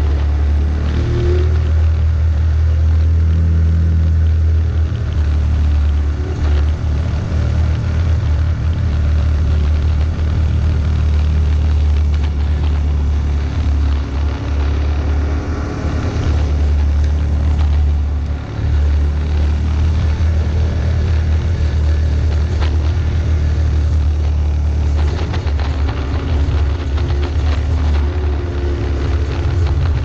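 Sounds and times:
vehicle engine rumbling: 0.0 - 30.0.

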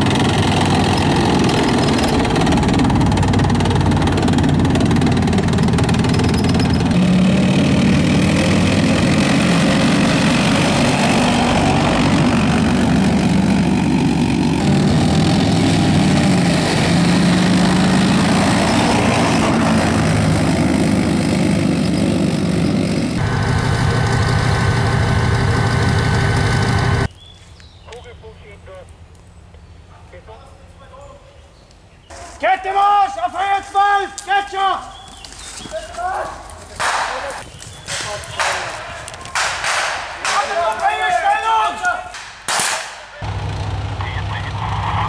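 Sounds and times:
diesel engine running loudly: 0.0 - 27.1, 43.2 - 45.0
high whine: 0.0 - 27.1.

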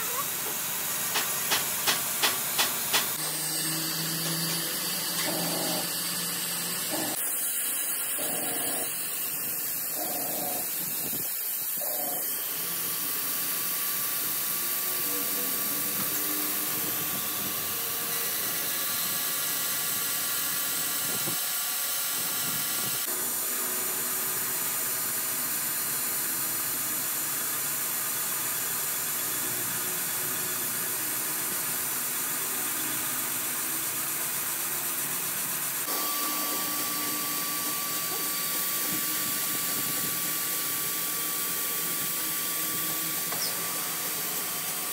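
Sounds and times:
grinding wheel grinding steel: 3.2 - 19.2, 35.8 - 44.9.

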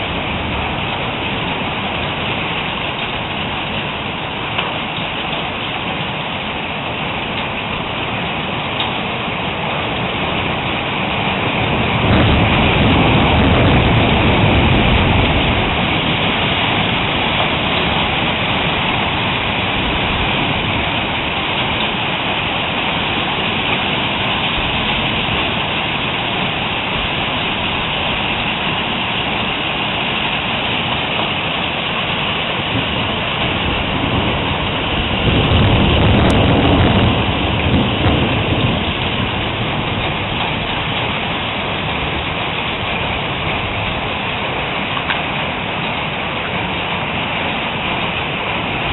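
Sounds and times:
heavy hail pelting down: 0.0 - 48.9
low rumble of thunder: 11.4 - 22.9, 32.7 - 44.2.

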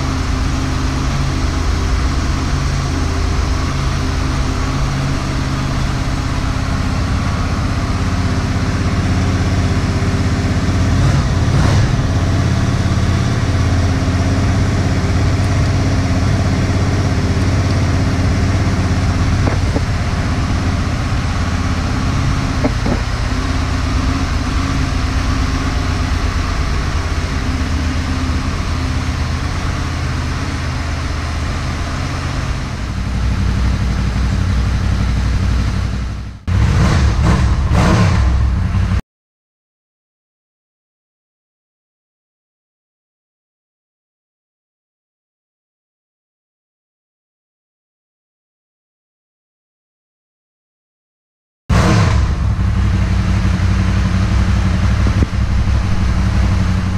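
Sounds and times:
motorcycle engine idling: 0.0 - 36.7, 52.3 - 56.9.

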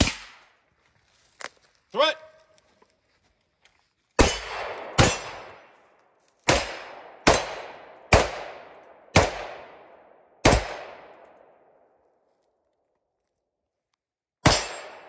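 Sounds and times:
gunshots with long echo: 0.0 - 0.6, 4.2 - 5.8, 6.4 - 12.1, 14.4 - 15.0.

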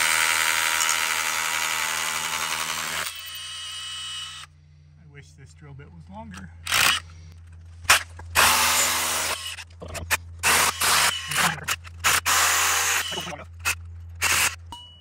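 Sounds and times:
drill boring into rock: 0.0 - 4.5, 8.4 - 9.6, 10.4 - 14.6.

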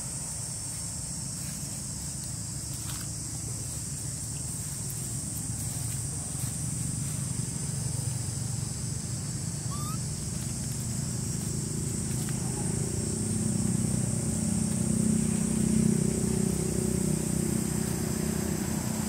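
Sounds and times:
steady high hiss: 0.0 - 19.0
motor engine humming: 4.4 - 19.0.

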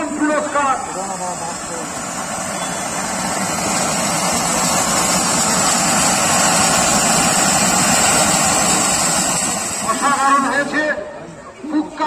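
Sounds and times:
fountain firework hissing: 0.0 - 10.7.

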